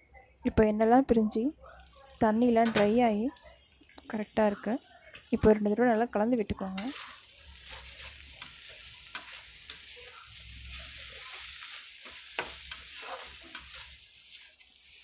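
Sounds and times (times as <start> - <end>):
frying oil sizzling: 1.4 - 15.0
spatula scraping a pan: 6.6 - 15.0
spatula clicking against pan: 8.4 - 9.8, 12.0 - 13.9.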